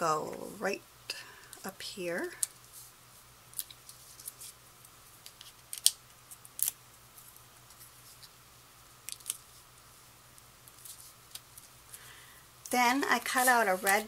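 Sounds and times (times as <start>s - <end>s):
paper rustling: 3.6s - 4.6s, 13.1s - 14.0s.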